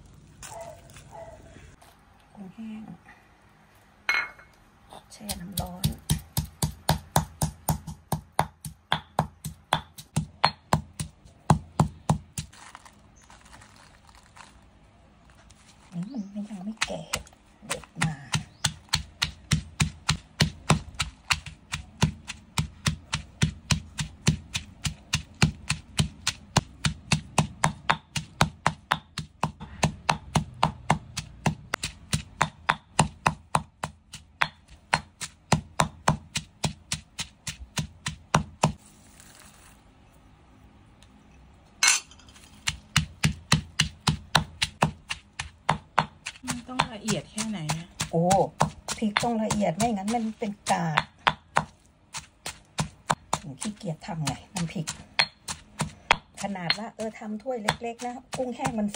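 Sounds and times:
pestle pounding in stone mortar: 0:05.2 - 0:12.8, 0:16.2 - 0:38.8, 0:42.4 - 0:58.9.

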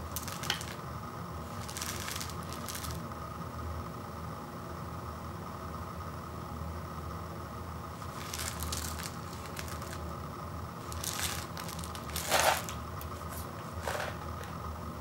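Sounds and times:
foil lid crinkling: 0:00.0 - 0:00.8, 0:01.4 - 0:03.0, 0:08.0 - 0:10.1, 0:10.8 - 0:14.2
faint steady hum: 0:00.0 - 0:15.0.

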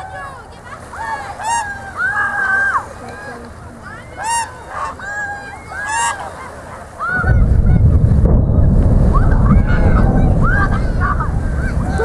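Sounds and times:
geese honking: 0:01.0 - 0:07.4
deep demolition rumble: 0:07.0 - 0:12.0.

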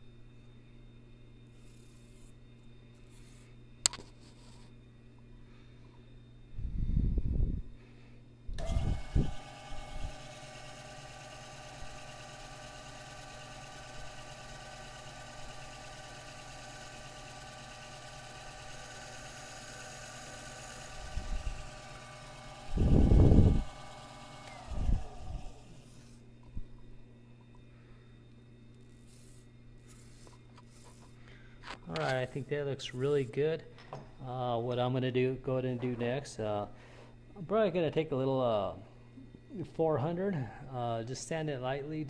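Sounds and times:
lathe whining: 0:08.6 - 0:26.3.

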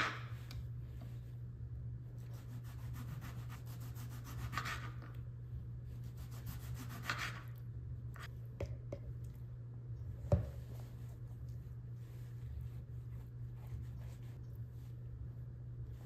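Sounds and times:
knife sawing through tomato: 0:02.4 - 0:05.0, 0:06.1 - 0:07.5.

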